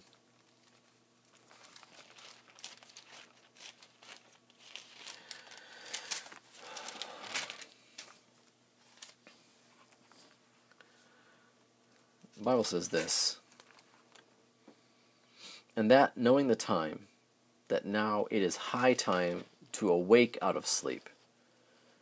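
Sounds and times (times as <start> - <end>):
book pages rustling: 0.4 - 10.4.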